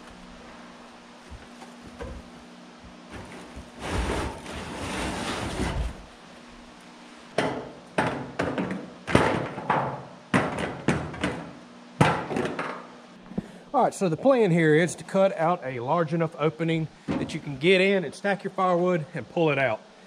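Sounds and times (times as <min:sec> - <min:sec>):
plastic scraping on steel: 0:03.1 - 0:06.0.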